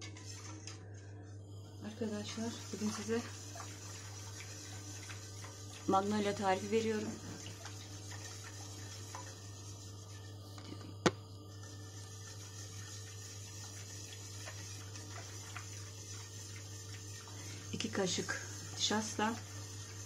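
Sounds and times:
whisk swishing liquid in a pot: 0:00.0 - 0:00.8, 0:01.9 - 0:10.6, 0:11.5 - 0:20.0
whisk tapping pot: 0:02.4 - 0:10.1, 0:12.0 - 0:20.0.

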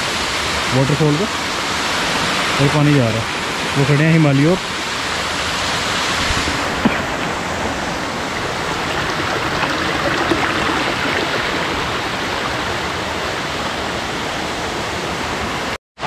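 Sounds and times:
stream splashing over stones: 0:06.4 - 0:13.5.

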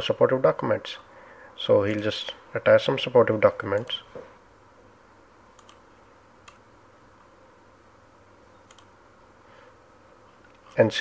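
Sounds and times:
low room hiss: 0:00.0 - 0:11.0
computer mouse clicks: 0:05.5 - 0:05.8, 0:06.4 - 0:06.6, 0:08.6 - 0:08.9.

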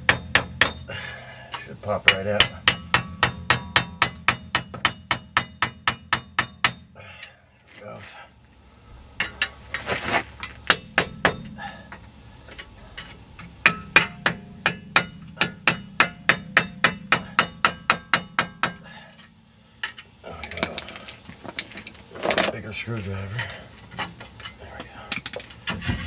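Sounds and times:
hammer tapping on steel: 0:02.1 - 0:06.8, 0:13.6 - 0:18.8.

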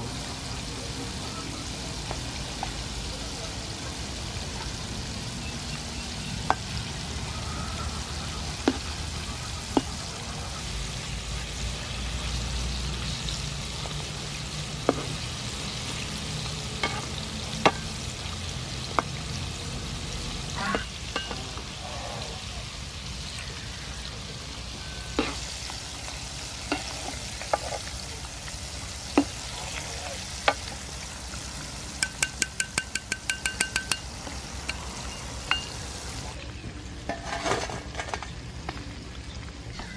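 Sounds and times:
food deep-frying in oil: 0:00.0 - 0:39.9
metal ladle knocking pan: 0:08.6 - 0:09.0, 0:14.8 - 0:15.2, 0:16.8 - 0:18.0, 0:20.6 - 0:21.7, 0:25.2 - 0:25.4, 0:32.0 - 0:35.8
wire strainer metal taps: 0:32.0 - 0:34.1.

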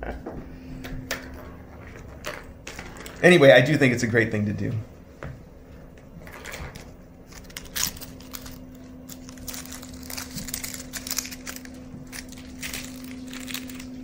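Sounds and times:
foil ball crinkling: 0:06.2 - 0:14.0.

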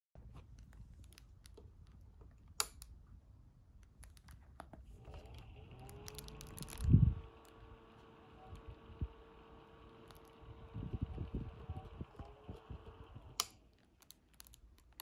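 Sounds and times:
plastic wrap crinkling: 0:00.4 - 0:02.2, 0:03.8 - 0:07.6, 0:13.6 - 0:15.0
fan motor whine with airy hiss: 0:05.0 - 0:13.6.

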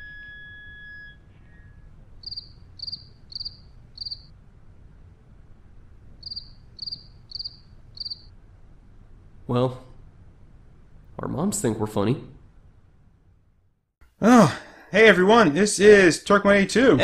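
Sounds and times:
cricket chirping: 0:00.0 - 0:04.4, 0:06.2 - 0:08.4
faint high ringing tone: 0:00.0 - 0:04.4, 0:06.2 - 0:08.4
low steady hum: 0:00.0 - 0:17.0.

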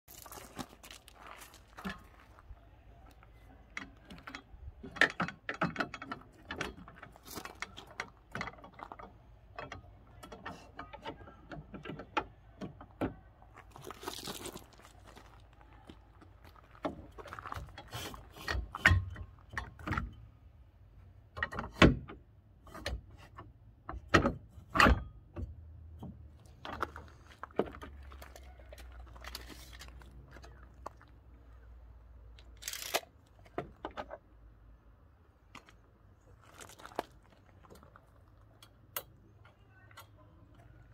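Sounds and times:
metal clicks and clunks: 0:03.1 - 0:13.8, 0:16.2 - 0:34.8, 0:37.6 - 0:40.9.

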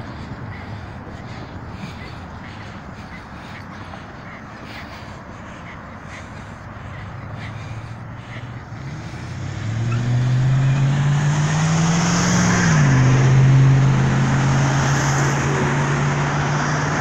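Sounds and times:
car engine accelerating: 0:05.4 - 0:17.0.

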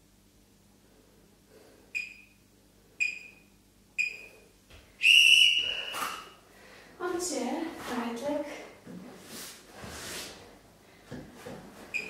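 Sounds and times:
long timer beep: 0:02.0 - 0:02.4, 0:03.0 - 0:03.4, 0:04.0 - 0:04.3
short high timer beeps: 0:02.0 - 0:02.4, 0:03.0 - 0:03.4, 0:04.0 - 0:04.3.

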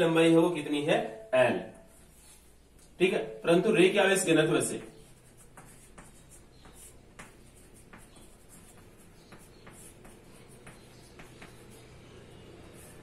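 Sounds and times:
chalk tapping and scratching: 0:04.6 - 0:13.0.

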